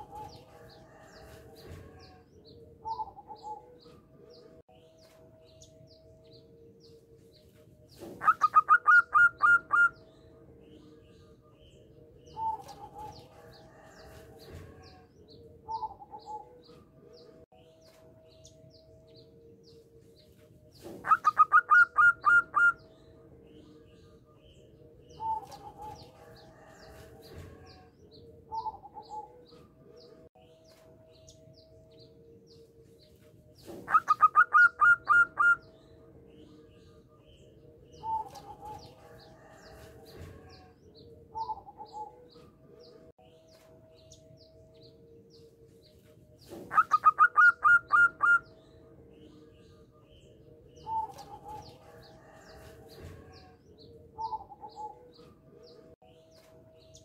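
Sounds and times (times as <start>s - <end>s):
dove cooing: 0.0s - 2.2s, 2.8s - 3.9s, 8.0s - 10.0s, 20.8s - 22.8s, 25.1s - 27.9s, 33.7s - 35.6s, 38.0s - 39.6s, 46.5s - 48.4s.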